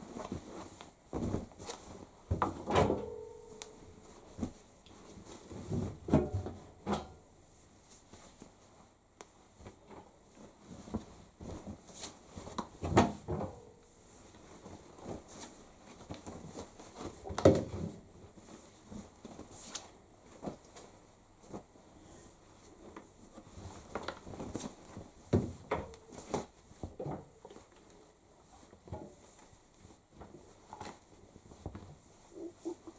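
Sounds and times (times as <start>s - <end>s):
shirts rustling: 0.0s - 32.9s.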